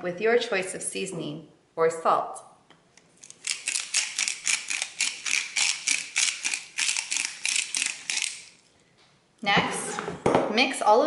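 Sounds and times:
salt grinder crunching: 3.2s - 8.7s.

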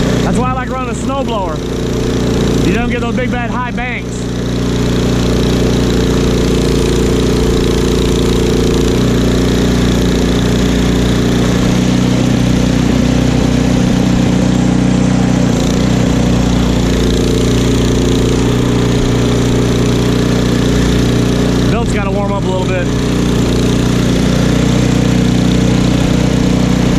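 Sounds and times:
auger throwing snow: 0.0s - 26.9s
snowblower engine running: 0.0s - 26.9s.

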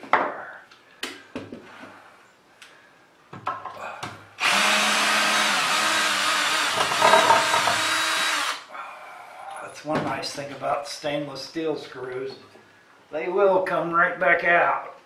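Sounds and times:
cordless drill running: 4.4s - 8.7s.

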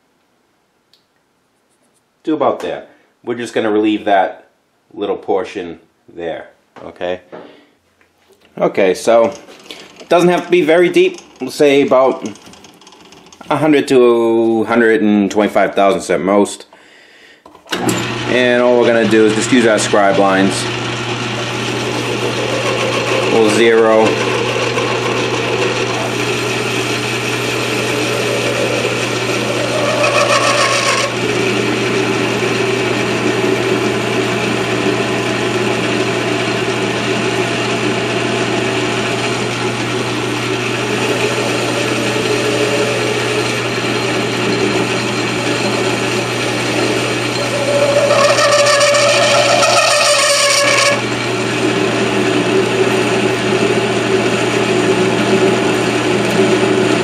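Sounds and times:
lathe humming: 17.8s - 57.0s
tool cutting steel ringing: 41.1s - 51.1s.

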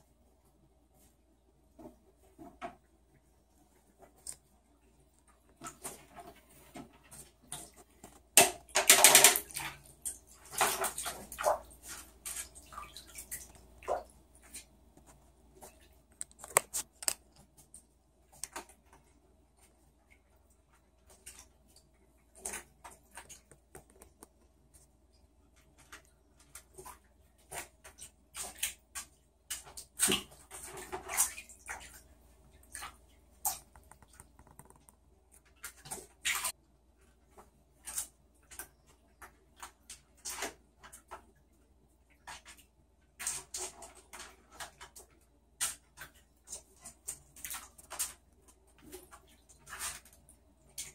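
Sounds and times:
animal scuffling in bathtub: 0.0s - 50.9s
small water splashes: 5.5s - 14.8s, 25.6s - 34.8s, 42.0s - 50.9s.

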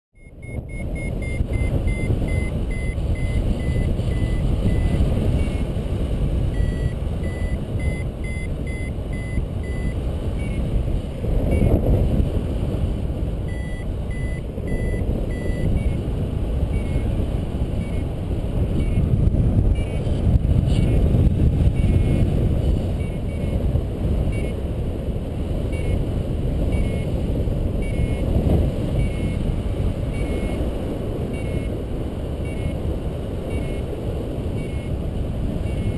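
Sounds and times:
variometer short beeps: 0.2s - 5.7s, 6.5s - 10.7s, 11.5s - 11.8s, 13.4s - 16.0s, 16.7s - 17.1s, 17.8s - 18.1s, 18.8s - 19.1s, 19.7s - 20.1s, 21.7s - 22.3s, 23.0s - 23.6s, 24.2s - 24.6s, 25.6s - 27.2s, 27.8s - 28.3s, 28.9s - 30.6s, 31.3s - 31.8s, 32.4s - 32.8s, 33.4s - 33.9s, 34.5s - 35.0s, 35.6s - 35.9s
wind rushing over microphone: 0.2s - 35.9s.

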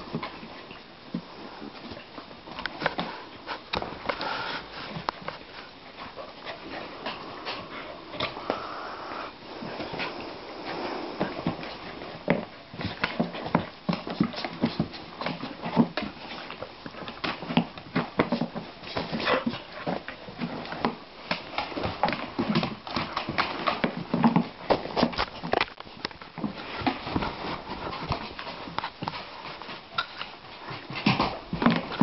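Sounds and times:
dog claws clicking and scuffling: 11.4s - 32.0s.

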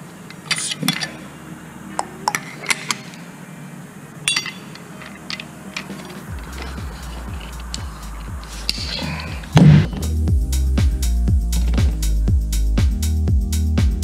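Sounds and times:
light metallic clicks and clinks: 0.3s - 1.2s, 4.2s - 9.0s
low throbbing background music: 0.4s - 14.0s.

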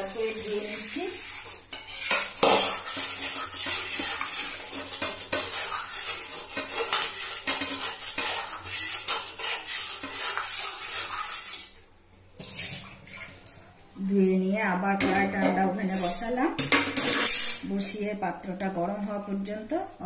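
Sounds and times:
scrubbing a metal pan: 0.0s - 11.8s.

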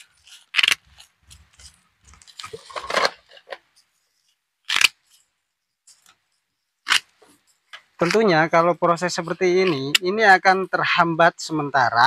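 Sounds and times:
shears snipping root: 0.0s - 2.6s
shears scraping in soil: 0.0s - 3.4s.

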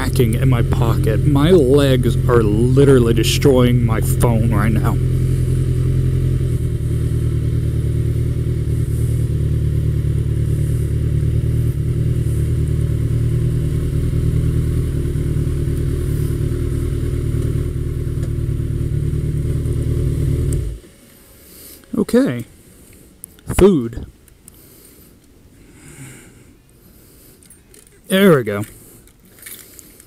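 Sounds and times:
motorcycle engine at low revs: 0.0s - 21.9s.

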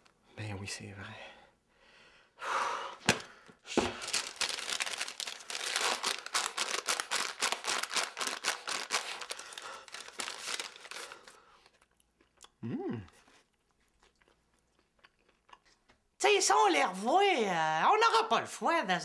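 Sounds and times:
paper packet tearing and crinkling: 3.7s - 11.4s.

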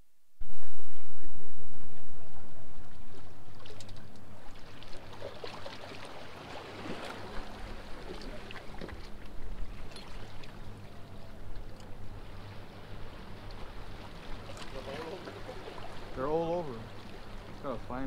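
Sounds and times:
water lapping among rocks: 2.8s - 17.8s
small clicks of fishing tackle: 3.6s - 4.3s, 11.5s - 12.0s.

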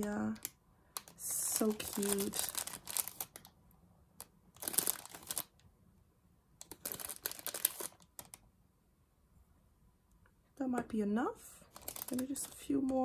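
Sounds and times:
plastic bag crinkling: 0.0s - 3.5s, 4.2s - 5.6s, 6.6s - 8.4s, 11.6s - 13.0s.

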